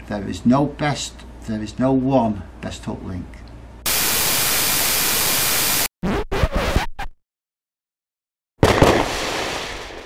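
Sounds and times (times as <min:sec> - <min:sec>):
loud static-like hiss: 0:03.9 - 0:05.9
short scratchy stutters: 0:03.9 - 0:07.2.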